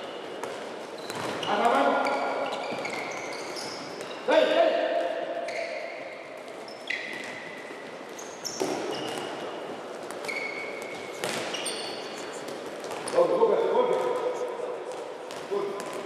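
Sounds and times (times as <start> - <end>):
shoes squeaking on floor: 0.0 - 4.5, 5.4 - 13.4
balls bouncing on wooden floor: 0.4 - 1.9, 6.3 - 14.1, 14.8 - 16.0.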